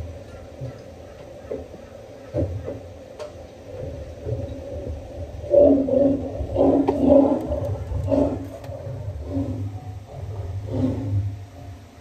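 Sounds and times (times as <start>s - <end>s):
tigers growling: 3.8s - 11.6s
tigers snarling roars: 4.5s - 11.4s.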